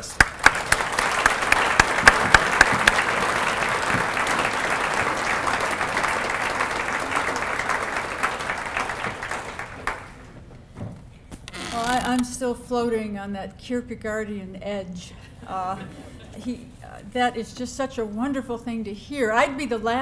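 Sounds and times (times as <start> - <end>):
sharp close claps: 0.0 - 10.2
audience applauding: 0.0 - 10.3.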